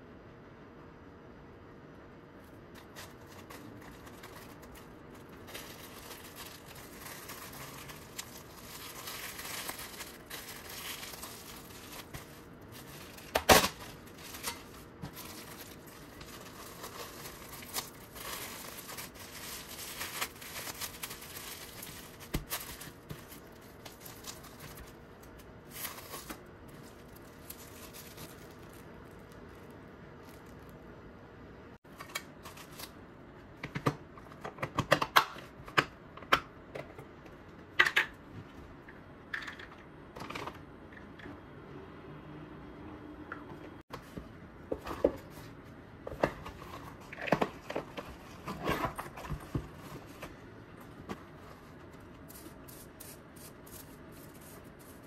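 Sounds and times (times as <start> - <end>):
wrapping sheet crinkling: 2.4 - 30.8.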